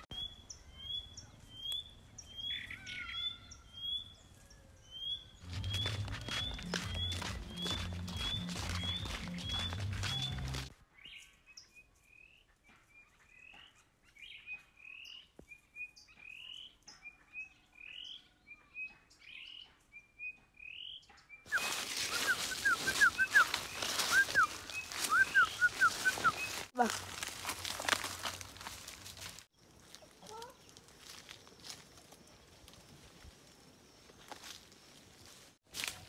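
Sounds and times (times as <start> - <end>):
whistled bird notes: 4.9 - 12.4, 19.2 - 26.6
bird repeating rising chirp: 21.6 - 26.6.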